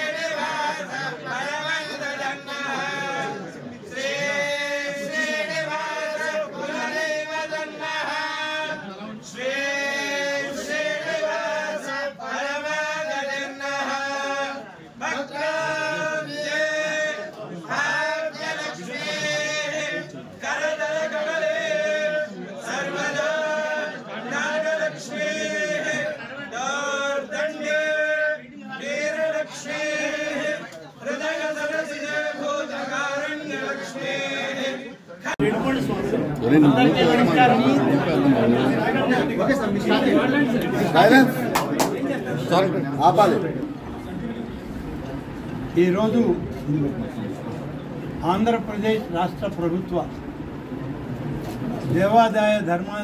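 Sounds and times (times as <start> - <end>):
men chanting: 0.0 - 41.5.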